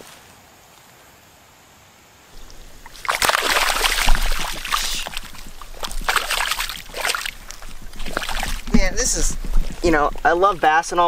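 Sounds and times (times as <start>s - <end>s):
fish splashing in water: 2.4s - 11.0s.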